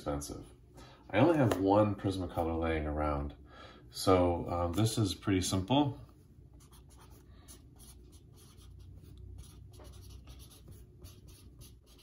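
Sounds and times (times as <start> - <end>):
marker rubbing on paper: 6.6 - 12.0.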